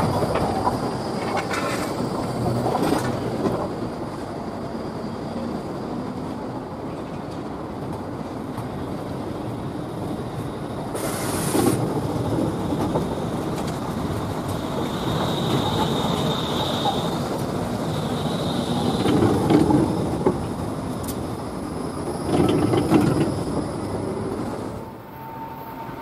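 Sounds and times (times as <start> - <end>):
tram wheels rumbling on rails: 0.0 - 26.0
high wheel squeal: 14.5 - 20.2, 20.8 - 26.0.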